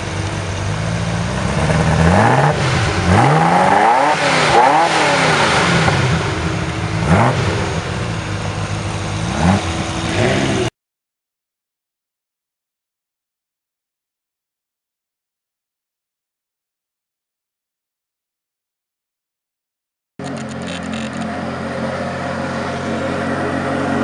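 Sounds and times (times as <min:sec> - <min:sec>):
sports car engine idling and revving: 0:00.0 - 0:10.7, 0:20.2 - 0:24.0.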